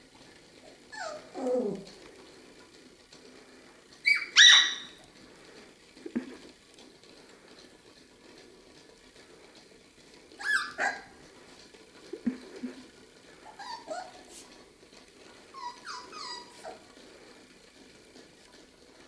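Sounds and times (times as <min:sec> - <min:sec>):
puppies yipping: 0:00.9 - 0:01.8, 0:04.0 - 0:05.0, 0:10.4 - 0:11.2, 0:13.4 - 0:14.4, 0:15.5 - 0:16.9.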